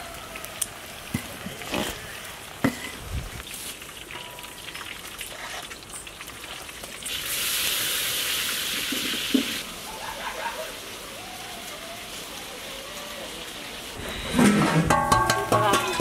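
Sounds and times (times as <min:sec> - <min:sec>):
loud sizzling in a wok: 0:07.0 - 0:16.0.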